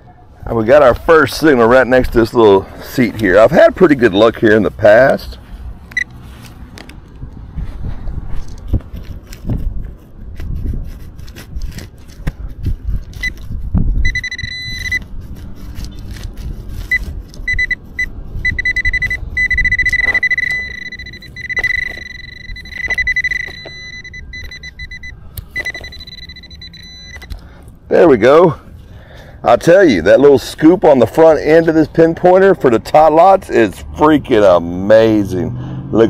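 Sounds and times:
pinpointer high alert tone: 0:14.0 - 0:15.0, 0:17.5 - 0:27.4.

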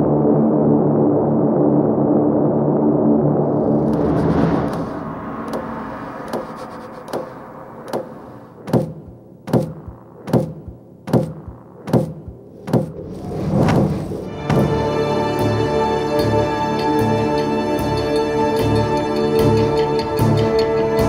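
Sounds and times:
low drone: 0:00.0 - 0:21.0
deep drum beat: 0:07.9 - 0:13.1, 0:13.7 - 0:15.2.

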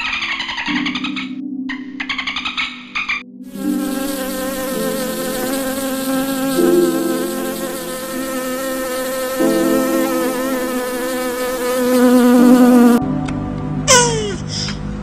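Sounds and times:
wasps buzzing: 0:03.5 - 0:13.0.

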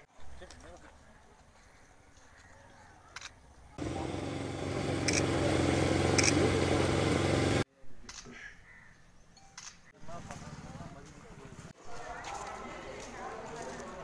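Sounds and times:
motorcycle engine running: 0:03.8 - 0:07.6.

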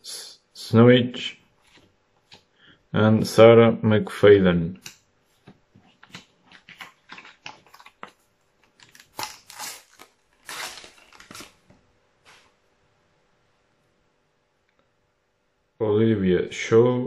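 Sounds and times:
wrapper tearing and crinkling: 0:06.1 - 0:11.8.

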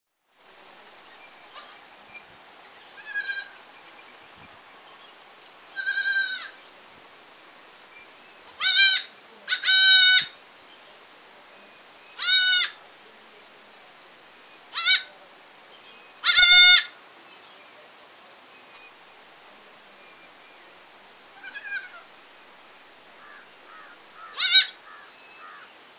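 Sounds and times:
baby goats bleating: 0:01.4 - 0:01.8, 0:03.0 - 0:03.6, 0:05.7 - 0:06.6, 0:08.5 - 0:10.4, 0:12.2 - 0:12.8, 0:14.7 - 0:15.1, 0:16.2 - 0:17.0, 0:21.4 - 0:22.0, 0:23.8 - 0:24.8.

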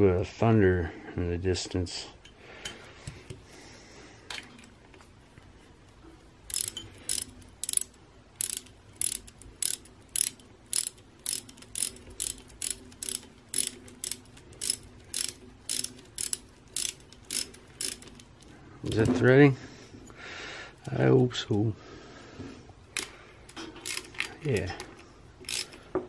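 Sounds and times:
socket ratchet clicking: 0:06.5 - 0:18.6, 0:22.9 - 0:24.7, 0:25.4 - 0:25.8.

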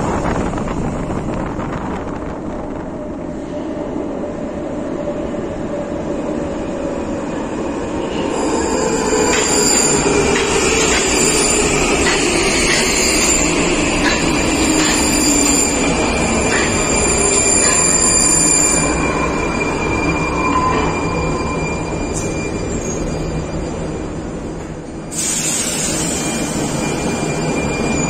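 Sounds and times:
train rumble: 0:00.0 - 0:28.0
wheels clicking over rails: 0:09.3 - 0:18.1.

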